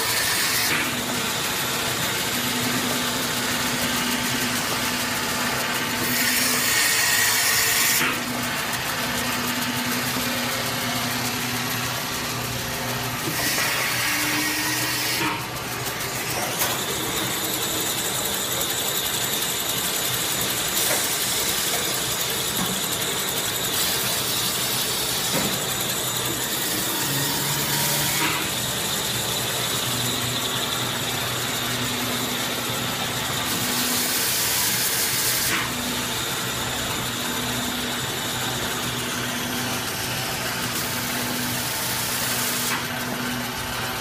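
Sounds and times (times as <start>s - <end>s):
high machine whine: 0.0s - 44.0s
clatter of gears and rollers: 15.3s - 39.0s.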